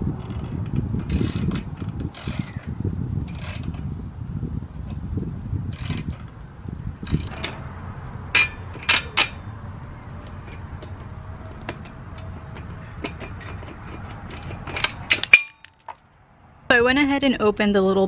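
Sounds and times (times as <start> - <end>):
ratchet wrench clicking: 1.0 - 2.7, 3.3 - 3.8, 5.7 - 6.2, 7.0 - 7.5
metallic knocks of saddle clamp: 10.2 - 16.1.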